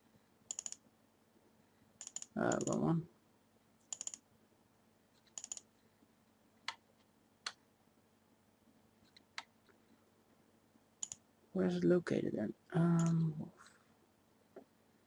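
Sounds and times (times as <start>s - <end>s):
computer mouse clicking: 0.5s - 0.8s, 2.0s - 2.8s, 3.8s - 4.2s, 5.2s - 5.7s, 11.0s - 11.2s.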